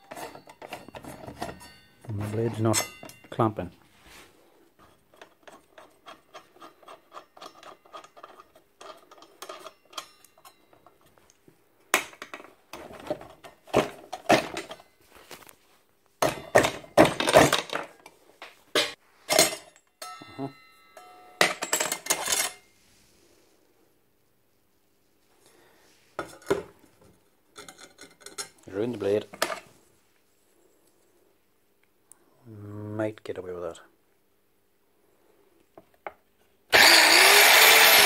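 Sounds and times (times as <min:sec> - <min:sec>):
metal saw parts clinking: 0:00.0 - 0:03.5, 0:05.0 - 0:11.2, 0:21.0 - 0:22.7, 0:36.8 - 0:38.0.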